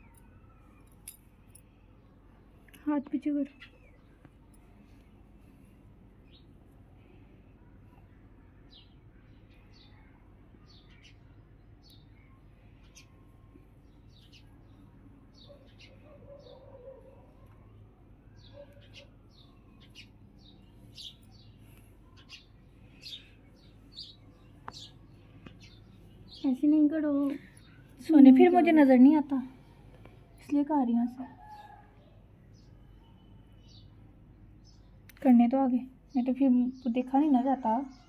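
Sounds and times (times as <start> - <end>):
small birds chirping: 0.0 - 38.0.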